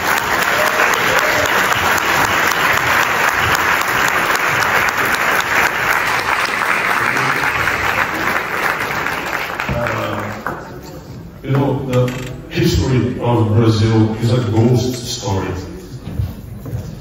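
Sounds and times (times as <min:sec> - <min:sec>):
audience applauding: 0:00.0 - 0:10.8.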